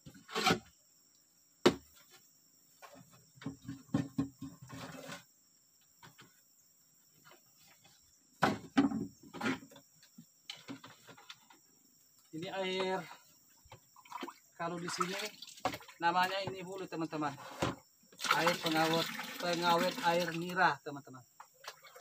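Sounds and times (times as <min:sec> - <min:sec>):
plastic cans knocking and clattering: 0:02.9 - 0:05.0, 0:08.4 - 0:09.8
insects shrilling: 0:12.2 - 0:20.8.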